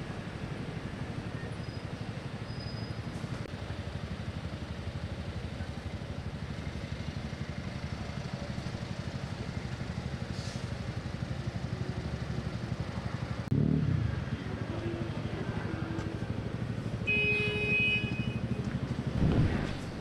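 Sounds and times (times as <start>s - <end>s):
slow road traffic rumble: 0.0s - 20.0s
loud rumble: 19.0s - 20.0s.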